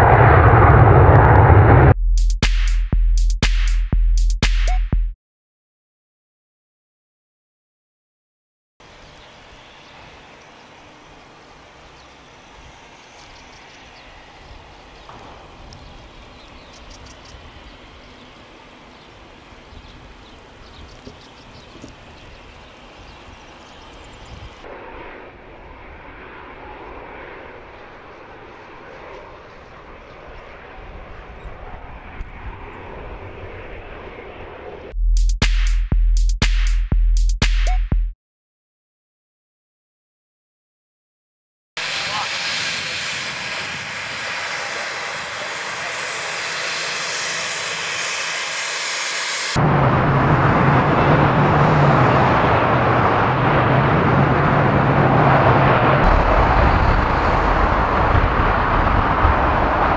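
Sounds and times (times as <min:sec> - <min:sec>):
deep aircraft roar: 0:00.0 - 0:02.0, 0:08.9 - 0:34.9, 0:41.8 - 0:59.9
jet engines running: 0:00.0 - 0:02.0, 0:09.4 - 0:34.9, 0:41.8 - 0:59.9.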